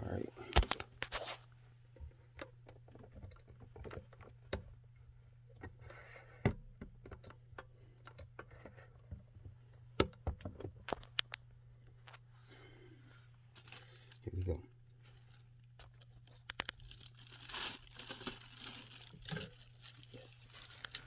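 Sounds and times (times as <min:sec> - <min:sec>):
plastic rustle: 0:15.0 - 0:21.0.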